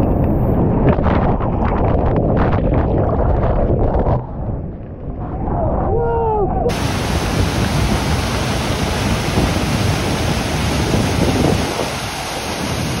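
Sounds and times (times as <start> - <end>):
waterfall rushing: 6.7 - 13.0.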